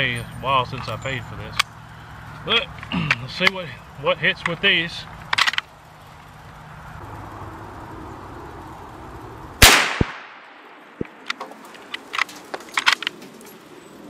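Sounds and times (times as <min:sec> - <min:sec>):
rifle shot: 0:09.6 - 0:11.2.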